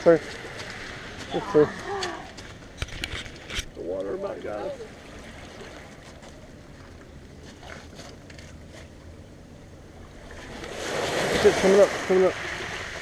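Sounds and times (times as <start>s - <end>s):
surf washing over pebbles: 0.0s - 2.6s, 10.1s - 13.0s.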